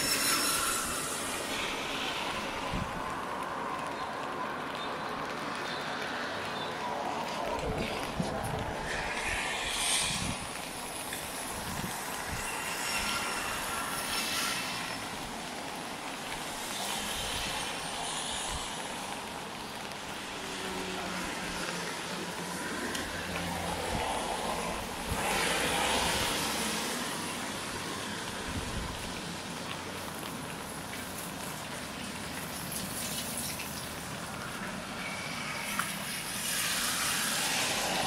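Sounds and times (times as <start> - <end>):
vehicles passing with tyre hiss: 0.0 - 38.0.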